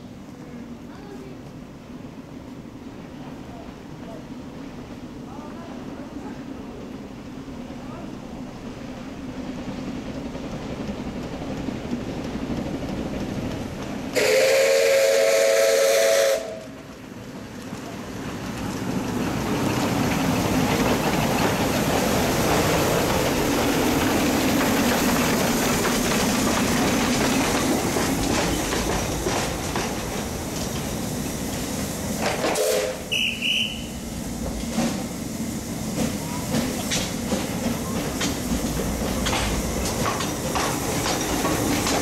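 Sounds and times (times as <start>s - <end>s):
steam hiss and running noise: 8.4s - 42.0s
steam whistle chord: 14.2s - 16.6s.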